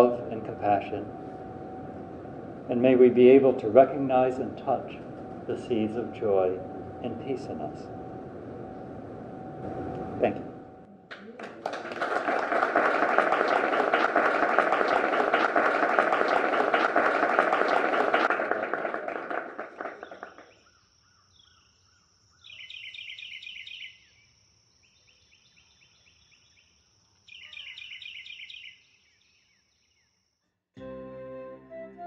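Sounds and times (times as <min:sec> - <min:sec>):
high thin whine: 0:00.0 - 0:11.1
audience applauding: 0:11.1 - 0:20.6.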